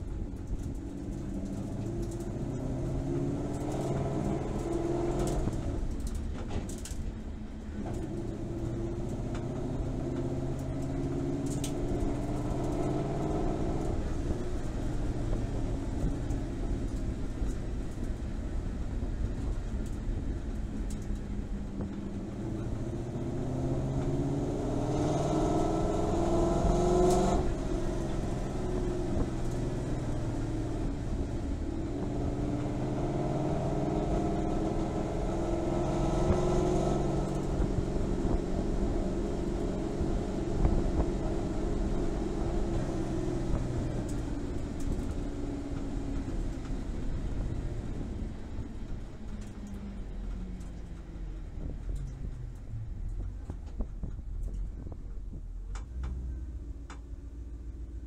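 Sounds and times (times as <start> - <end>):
car engine revving: 0.0 - 7.0, 7.6 - 18.0, 21.8 - 48.0.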